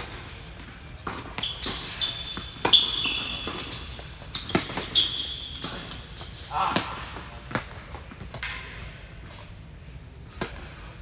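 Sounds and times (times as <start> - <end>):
tennis ball bouncing on court: 0.0 - 6.0
racquets hitting tennis ball: 0.0 - 8.8
sneakers squeaking on court: 0.0 - 10.8.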